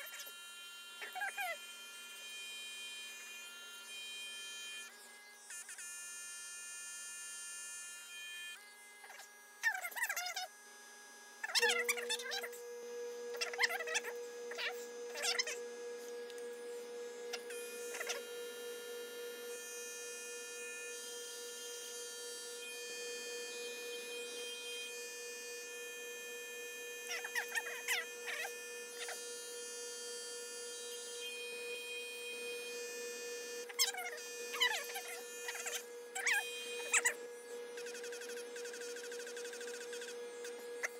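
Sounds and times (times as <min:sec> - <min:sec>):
compressor humming: 0:11.8 - 0:25.8.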